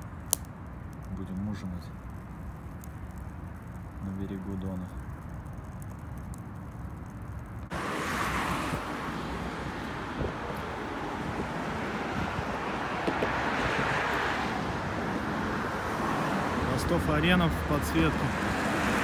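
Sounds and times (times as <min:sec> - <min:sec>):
wind on microphone: 0:07.4 - 0:16.7
road traffic rushing: 0:07.4 - 0:19.0.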